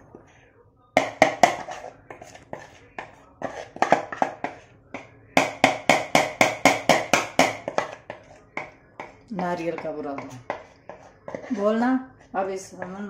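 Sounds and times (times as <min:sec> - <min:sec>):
spoon knocking in plastic bowl: 0:01.0 - 0:11.6.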